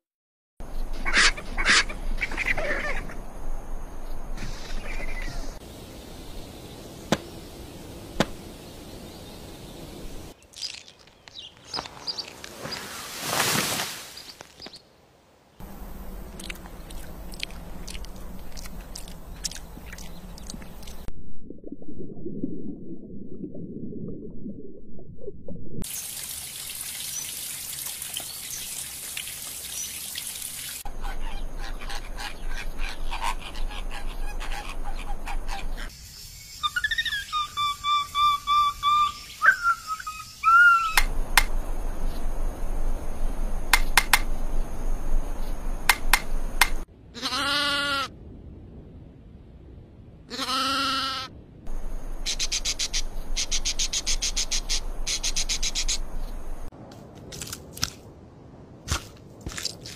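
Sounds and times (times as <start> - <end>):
sharp taps: 7.1 - 7.3, 8.2 - 8.4
birds whistling: 36.4 - 41.1.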